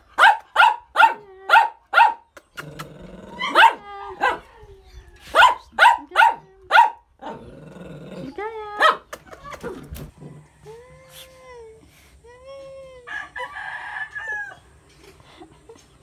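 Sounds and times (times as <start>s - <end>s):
dog growling: 2.5s - 3.7s, 7.2s - 8.7s, 9.7s - 10.6s.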